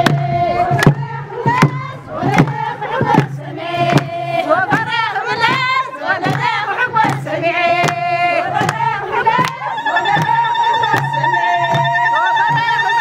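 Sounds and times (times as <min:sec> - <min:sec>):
regular struck beat: 0:00.0 - 0:13.0
women singing together: 0:00.0 - 0:13.0.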